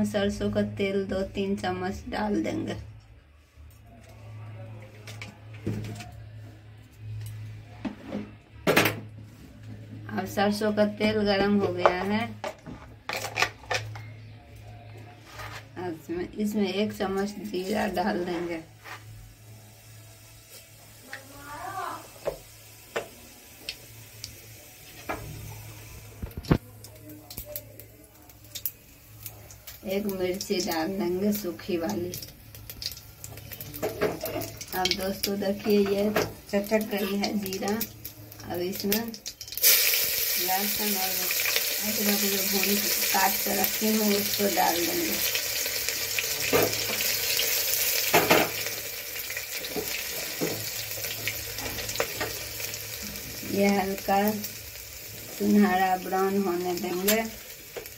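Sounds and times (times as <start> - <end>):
seeds popping in hot oil: 26.2 - 57.9.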